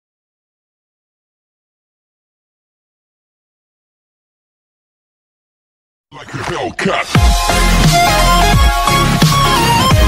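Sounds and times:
electronic dance music: 6.2 - 10.0.

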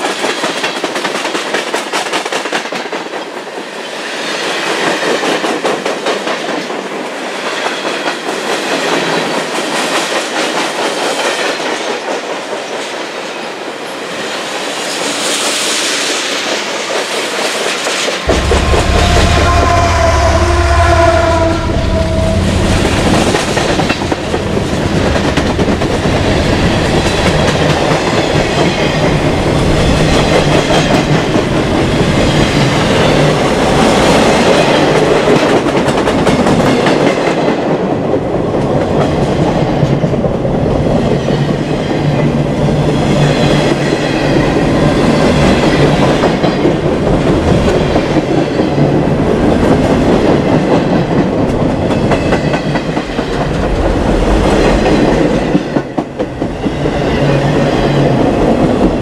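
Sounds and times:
clickety-clack over rail joints: 0.0 - 19.2, 22.6 - 59.0
train wheels rumbling on rail: 0.0 - 59.0
locomotive engine hum: 18.2 - 28.0
high-pitched wheel whine: 18.3 - 24.1.

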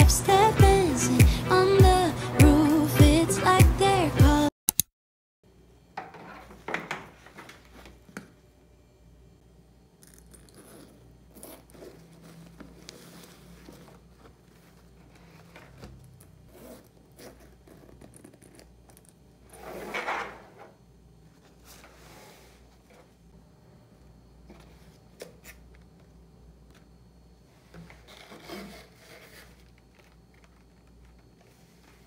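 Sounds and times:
backpack zips pulled open: 16.5 - 18.6.

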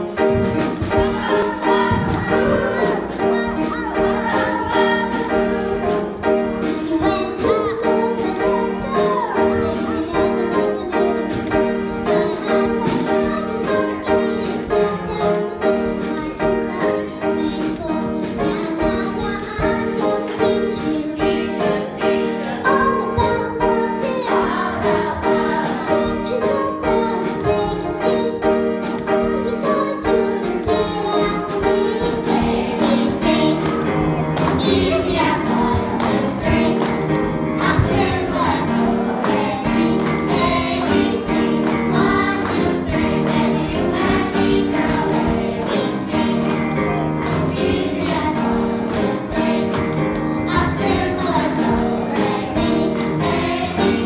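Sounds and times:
backing music with steady beat: 0.0 - 54.0
children singing together: 0.0 - 54.0
hand claps: 33.5 - 48.3.

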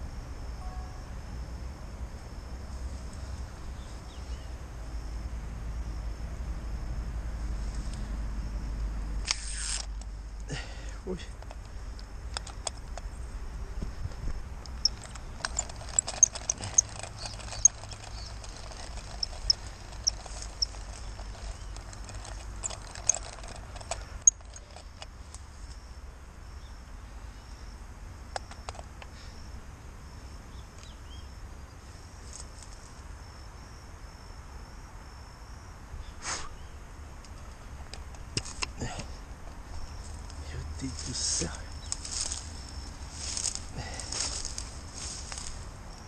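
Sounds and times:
low steady rumble: 0.0 - 28.3
high-pitched chirps: 14.7 - 23.6.

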